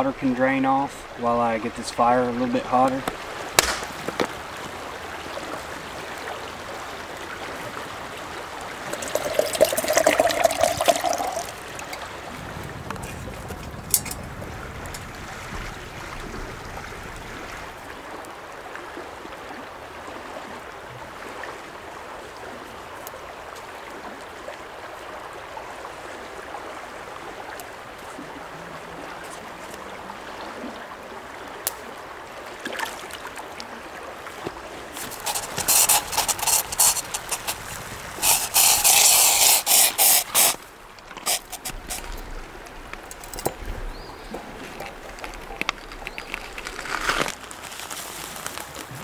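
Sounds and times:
creek flowing over rocks: 0:00.0 - 0:49.0
loud scratchy bursts: 0:35.0 - 0:40.6, 0:41.2 - 0:42.1.

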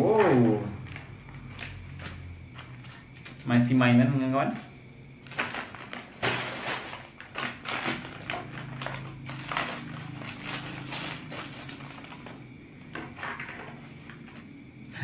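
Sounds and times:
plastic wrapper crinkling: 0:05.2 - 0:12.4
scissors cutting packet: 0:05.3 - 0:12.3.

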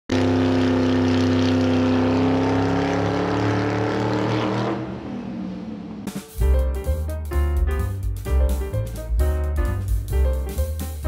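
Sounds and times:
racing car engine at high revs: 0:00.1 - 0:06.2.

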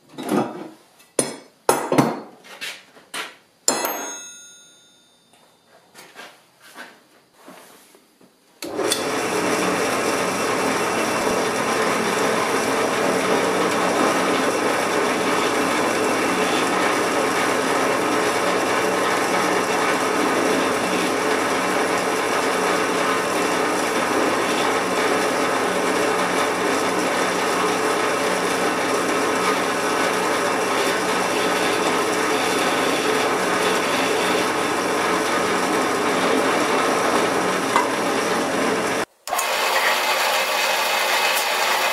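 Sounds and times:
drill press drilling metal: 0:08.6 - 0:41.9.

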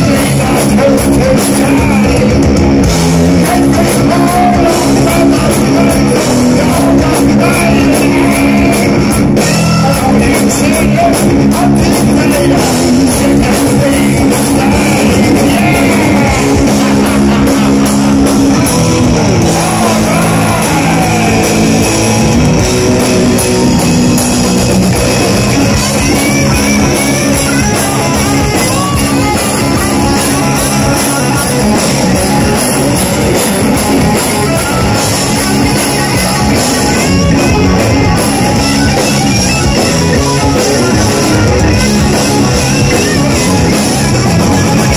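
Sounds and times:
distorted electric guitar riffing: 0:00.0 - 0:44.9
drum kit: 0:00.0 - 0:44.9
heavy metal band playing: 0:00.0 - 0:44.9.

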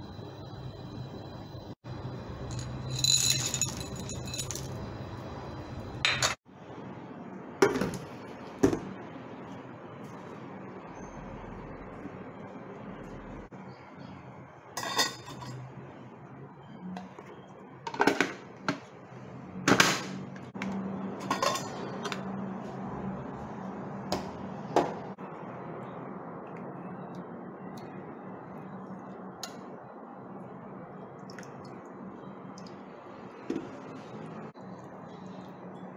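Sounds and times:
metal lids clanking: 0:21.2 - 0:22.2.

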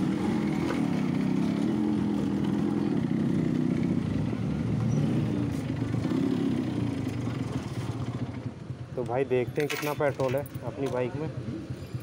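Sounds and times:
motorcycle engine running: 0:00.0 - 0:09.1.

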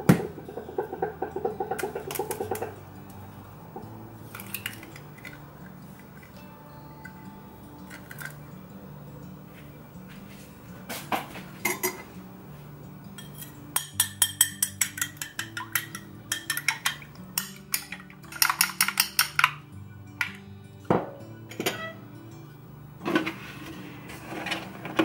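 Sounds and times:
spoon clinking against bowl: 0:13.1 - 0:19.6.

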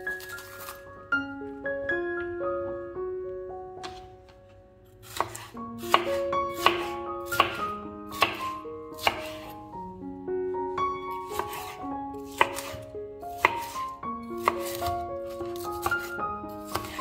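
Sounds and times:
soft background music: 0:00.0 - 0:17.0
knife cutting on wooden board: 0:05.0 - 0:09.6, 0:11.3 - 0:17.0.

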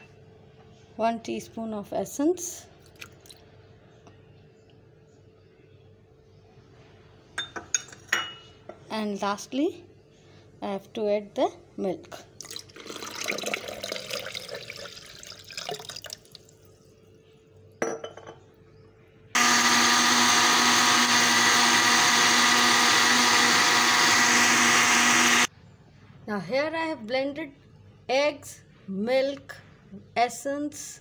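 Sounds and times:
milk pouring into blender jar: 0:12.4 - 0:16.5
electric blender running: 0:19.4 - 0:25.5.

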